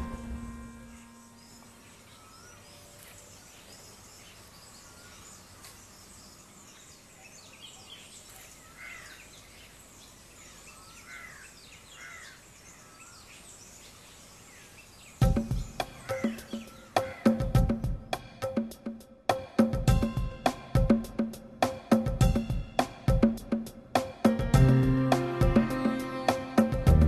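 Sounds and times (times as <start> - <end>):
bird chirps and calls: 0.1 - 17.9.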